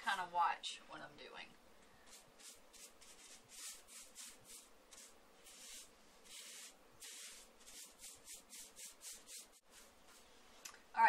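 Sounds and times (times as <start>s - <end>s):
paintbrush swishing: 2.0s - 10.5s.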